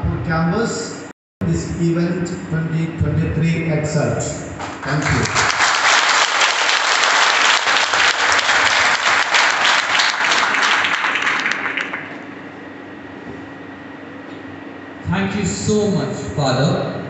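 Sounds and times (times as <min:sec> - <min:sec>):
audience applauding: 0:04.6 - 0:12.2.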